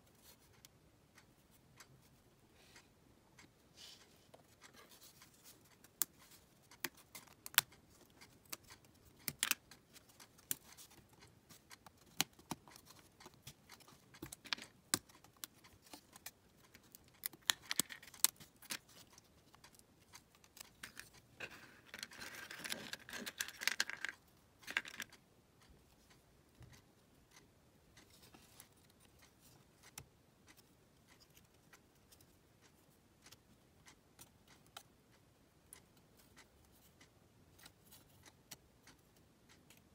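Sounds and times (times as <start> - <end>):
wood pieces clicking and tapping: 21.9 - 25.1.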